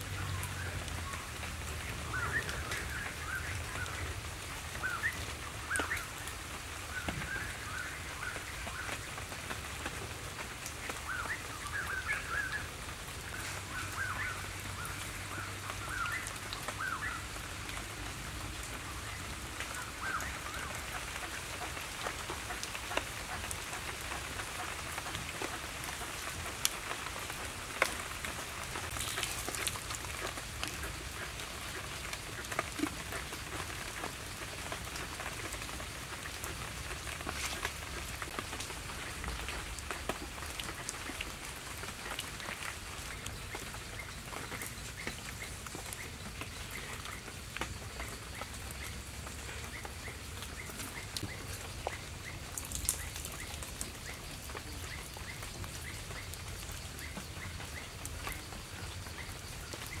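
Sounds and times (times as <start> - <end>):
crackling patter of clicks: 5.1 - 12.2, 19.6 - 60.0.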